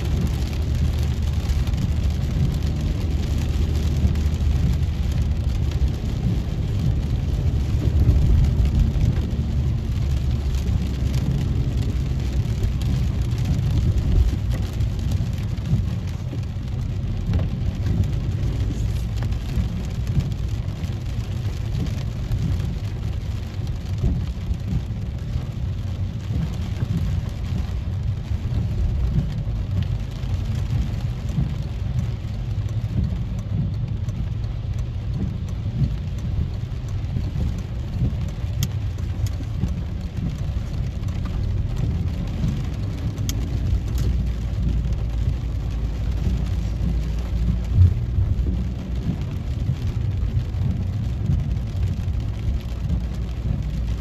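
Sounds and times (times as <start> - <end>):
rain on car roof: 0.0 - 54.0
road and engine rumble: 0.0 - 54.0.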